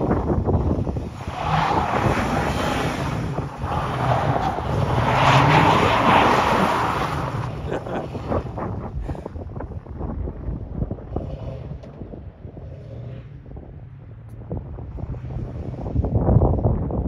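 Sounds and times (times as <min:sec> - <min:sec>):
wind on microphone: 0:00.0 - 0:17.0
pickup engine revving hard: 0:00.9 - 0:08.3.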